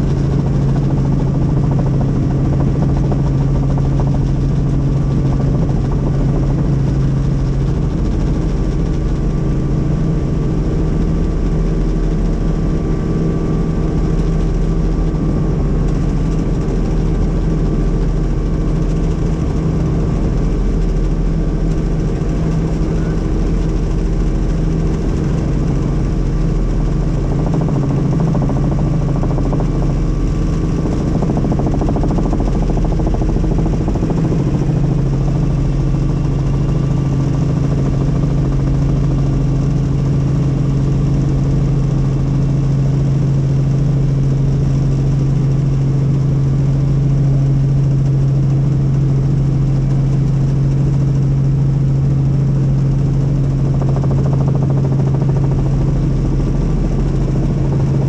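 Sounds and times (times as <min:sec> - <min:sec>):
helicopter rotor and engine drone: 0:00.0 - 0:58.0.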